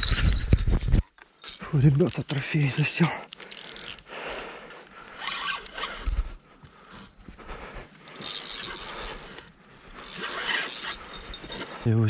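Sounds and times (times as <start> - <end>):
scattered clicks: 0.0 - 4.1
fishing rod handling rustle: 0.0 - 12.0.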